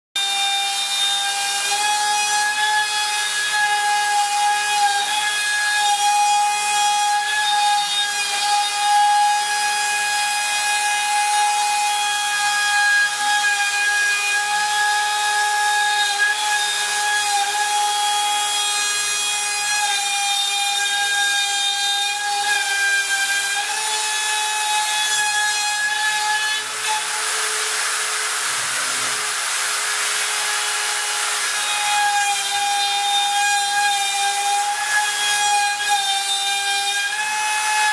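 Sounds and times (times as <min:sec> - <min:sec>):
cutter rasping into wood: 0:00.2 - 0:37.9.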